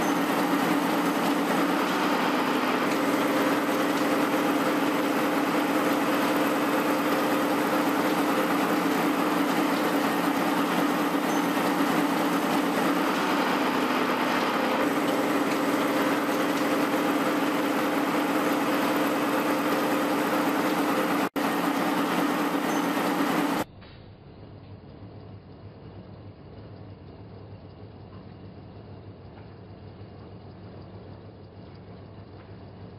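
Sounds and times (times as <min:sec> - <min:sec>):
milling machine humming: 0:00.0 - 0:23.6.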